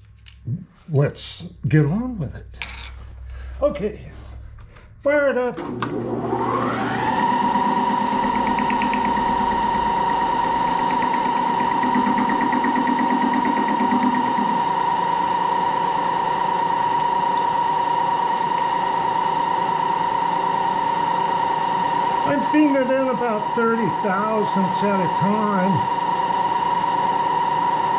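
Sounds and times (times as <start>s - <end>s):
machine spindle whine: 5.5s - 27.9s.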